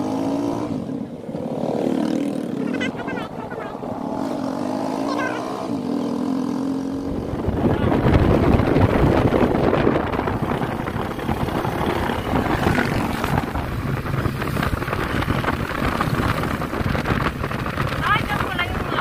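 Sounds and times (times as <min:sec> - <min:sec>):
vehicle engine and road noise: 0:00.0 - 0:19.0
wind buffeting microphone: 0:05.6 - 0:19.0.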